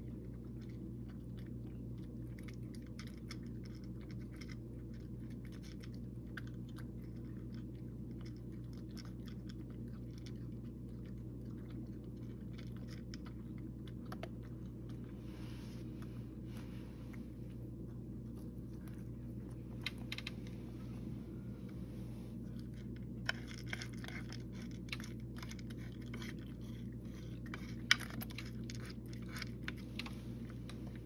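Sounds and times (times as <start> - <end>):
cat crunching dry kibble: 0.0 - 21.1, 22.4 - 31.0
steady low hum: 0.0 - 31.0.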